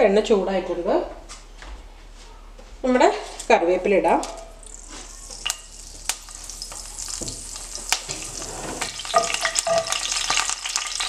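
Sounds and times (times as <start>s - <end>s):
leaves sizzling in hot oil: 4.6s - 11.0s
wooden spoon stirring in a pan: 4.7s - 11.0s.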